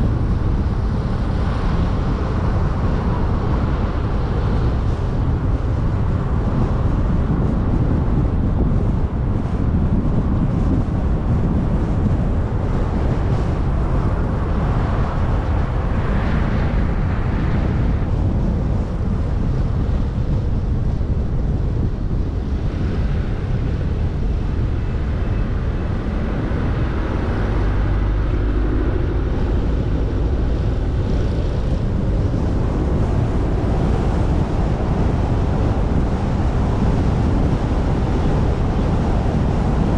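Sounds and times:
car road and wind noise: 0.0 - 39.9.

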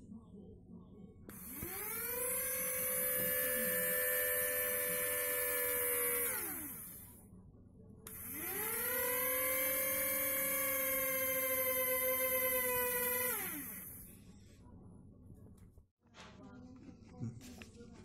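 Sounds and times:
toy motors whining: 1.3 - 7.1, 8.1 - 14.0.

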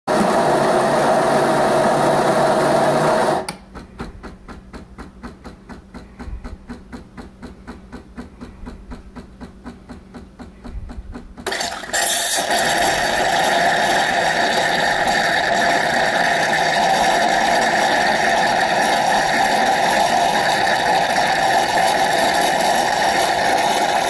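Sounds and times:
espresso machine frothing hiss: 11.5 - 24.0.

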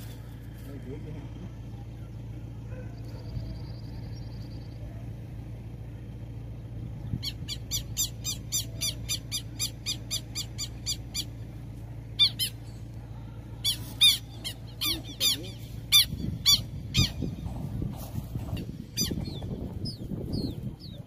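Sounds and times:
bird shrill alarm calls: 7.2 - 11.4, 12.2 - 12.8, 13.6 - 17.4, 18.6 - 21.0.

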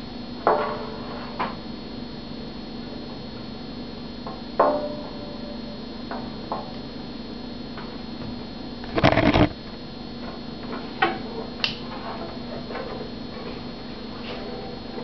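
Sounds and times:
banjo handling scraping rustle: 8.8 - 9.6
sharp clicks and knocks: 8.8 - 9.6.

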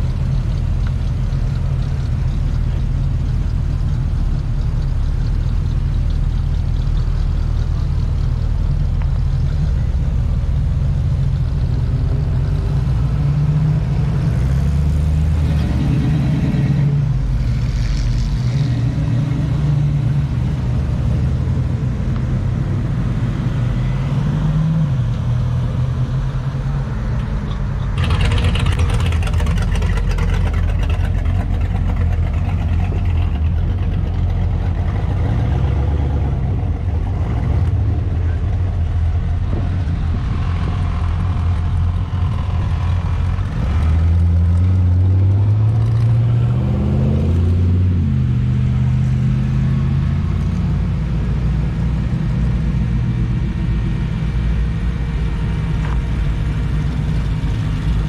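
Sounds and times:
rough loud exhaust: 0.0 - 25.2, 27.5 - 58.0
car engines driving past: 0.0 - 58.0.

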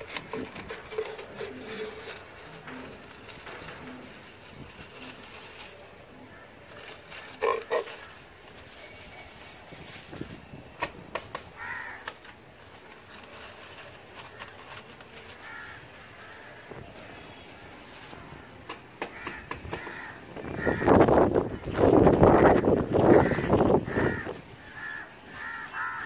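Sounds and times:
broom sticks clicking and rustling: 0.0 - 26.0
crows cawing: 11.4 - 12.2, 15.3 - 16.8, 18.2 - 26.0.

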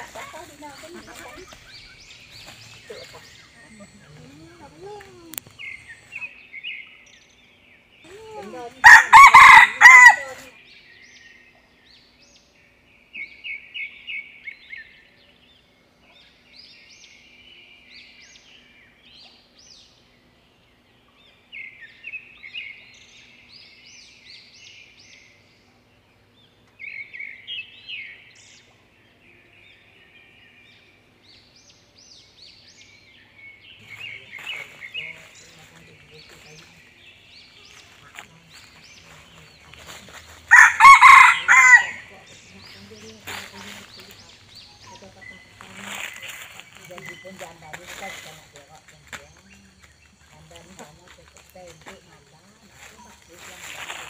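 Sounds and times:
rooster crowing: 8.8 - 10.5, 40.5 - 42.3.

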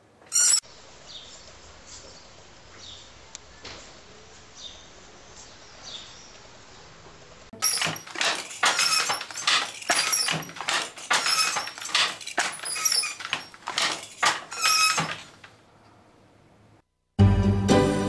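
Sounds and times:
wooden hand loom clattering: 7.6 - 15.6
music: 17.2 - 18.0.

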